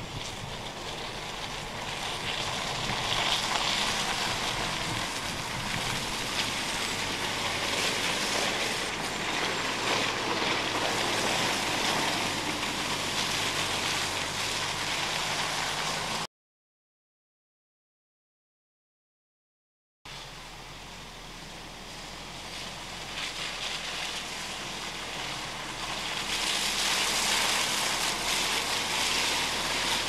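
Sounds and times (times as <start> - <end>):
wind on microphone: 0.0 - 7.7
car engine hum: 0.0 - 16.3, 20.1 - 30.0
tyres rushing on wet grass: 0.0 - 16.3, 20.1 - 30.0.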